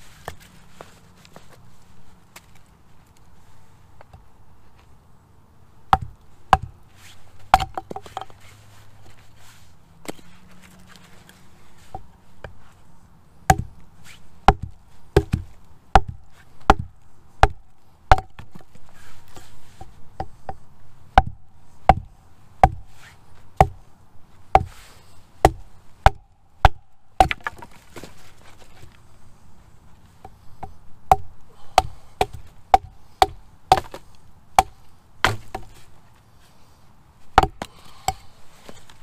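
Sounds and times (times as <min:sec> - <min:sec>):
hatchet chopping log: 0:05.9 - 0:06.8, 0:07.5 - 0:08.3, 0:13.4 - 0:13.8, 0:14.4 - 0:18.7, 0:19.8 - 0:22.9, 0:23.6 - 0:23.8, 0:24.5 - 0:24.8, 0:25.4 - 0:28.1, 0:30.2 - 0:35.8, 0:37.4 - 0:38.3.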